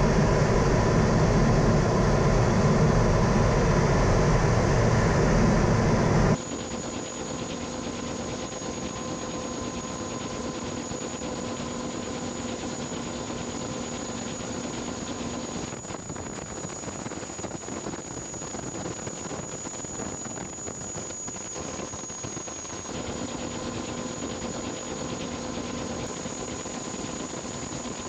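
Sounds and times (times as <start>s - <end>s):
low hum: 0.0s - 6.4s
faint high whine: 0.0s - 28.0s.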